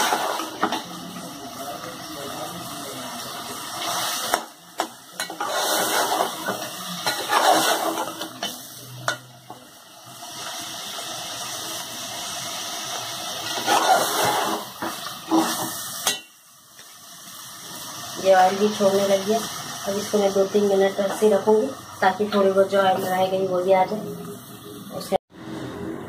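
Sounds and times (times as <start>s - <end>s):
oil sizzling: 0.0s - 25.2s
metal spatula scraping pot: 5.2s - 9.3s, 13.4s - 16.3s.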